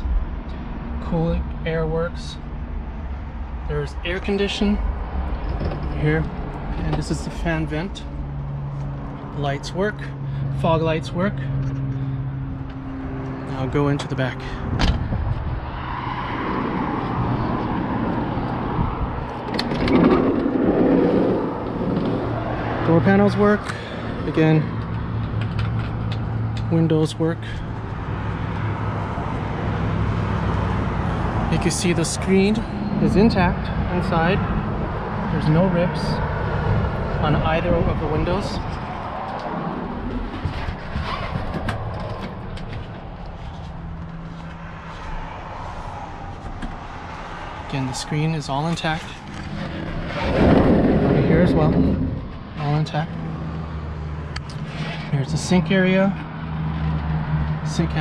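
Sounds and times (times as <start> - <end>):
sliding door rolling open: 19.6 - 22.3.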